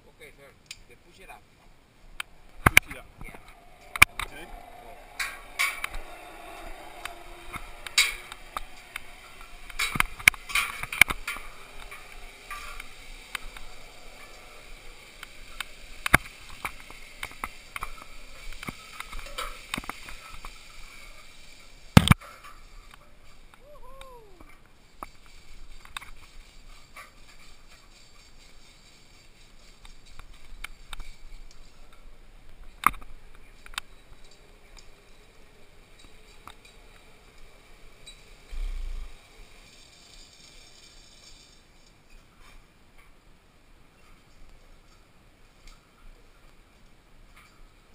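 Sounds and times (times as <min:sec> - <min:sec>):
carabiners clanking on metal: 0:02.6 - 0:23.4.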